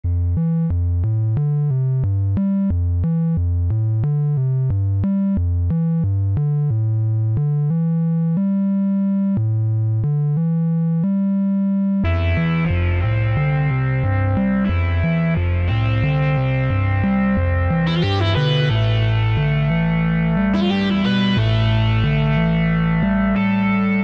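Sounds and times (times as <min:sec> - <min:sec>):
synthesizer melody: 0:12.0 - 0:24.0.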